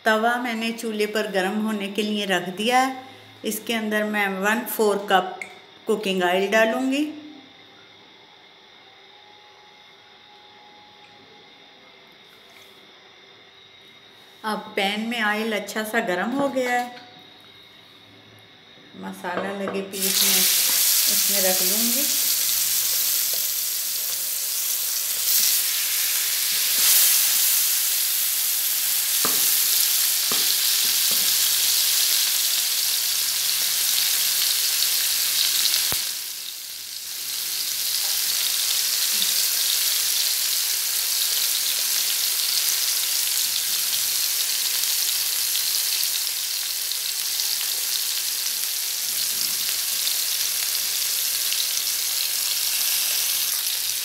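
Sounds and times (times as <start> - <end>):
chicken sizzling in hot oil: 20.0 - 54.0.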